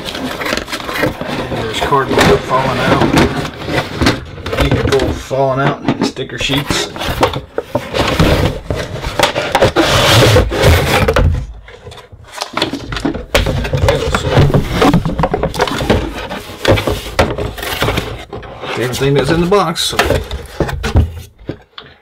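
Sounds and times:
cardboard boxes rubbing and scraping: 0.0s - 21.6s.

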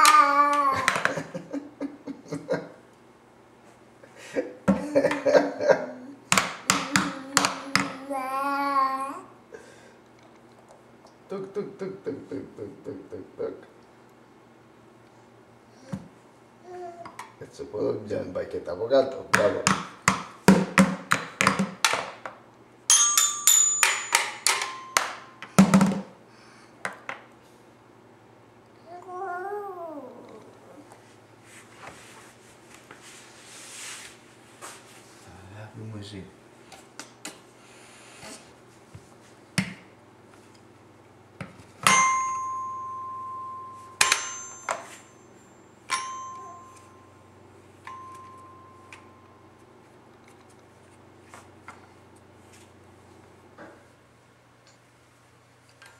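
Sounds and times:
toy xylophone ringing tones: 41.8s - 47.1s, 47.8s - 49.3s
toy xylophone notes: 45.9s - 47.1s, 47.8s - 49.1s.

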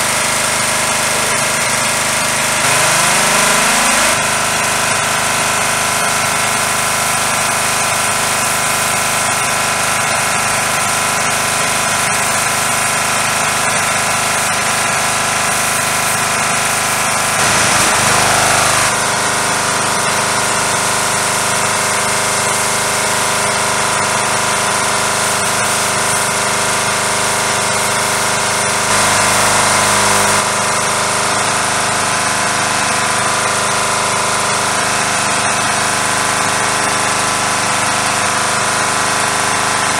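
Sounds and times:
pressure washer spraying: 0.1s - 30.6s.

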